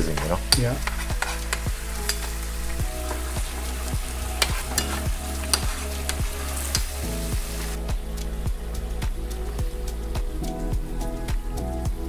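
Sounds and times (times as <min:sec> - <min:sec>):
crab sizzling in a frying pan: 0:00.0 - 0:08.4
background music: 0:00.0 - 0:12.0.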